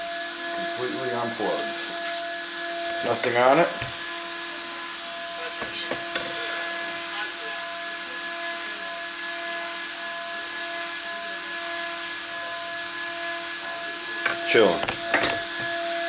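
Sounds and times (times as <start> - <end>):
small cooling fan whining: 0.0 - 16.0.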